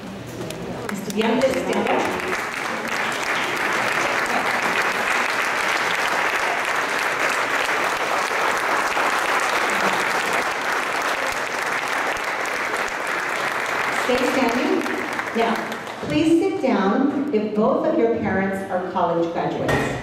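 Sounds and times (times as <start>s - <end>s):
audience applauding: 0.8s - 16.1s.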